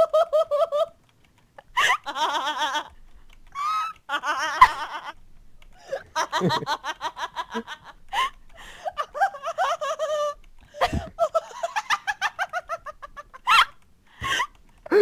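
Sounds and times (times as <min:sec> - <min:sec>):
woman laughing: 0:00.0 - 0:00.9, 0:01.6 - 0:03.0, 0:03.6 - 0:05.2, 0:05.8 - 0:15.0.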